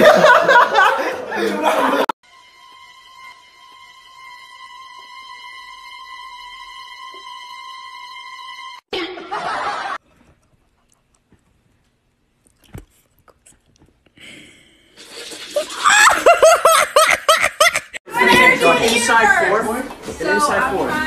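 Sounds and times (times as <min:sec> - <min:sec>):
person laughing hard: 0:15.8 - 0:18.0.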